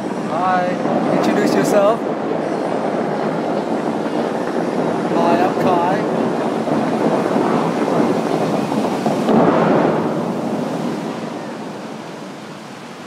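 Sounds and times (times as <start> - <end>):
fountain water jets rushing: 0.0 - 13.0.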